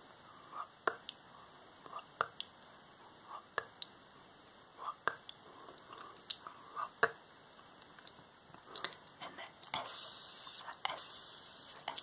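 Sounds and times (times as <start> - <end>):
soft whispering: 0.2 - 2.4, 3.0 - 3.7, 4.7 - 7.2, 8.6 - 12.0
wet mouth clicks: 0.8 - 1.2, 1.8 - 2.5, 4.9 - 11.1.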